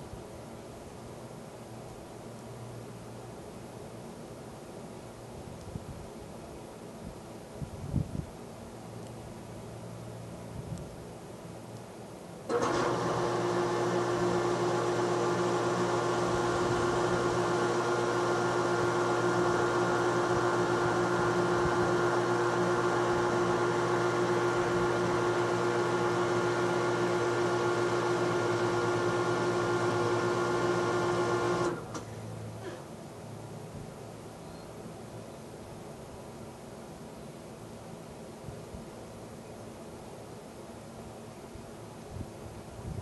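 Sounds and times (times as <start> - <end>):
machine motor hum: 12.5 - 32.8.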